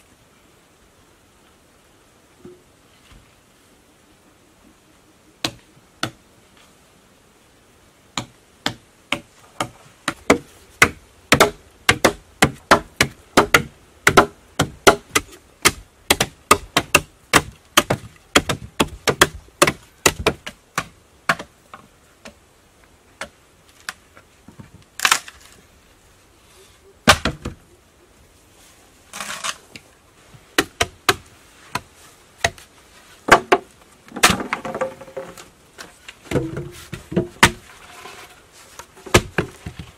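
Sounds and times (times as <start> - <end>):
bamboo sections knocking: 5.4 - 6.2, 8.2 - 22.4, 27.0 - 27.6, 30.6 - 39.9
blade chopping bamboo: 8.2 - 21.5, 36.3 - 37.7, 39.0 - 39.8.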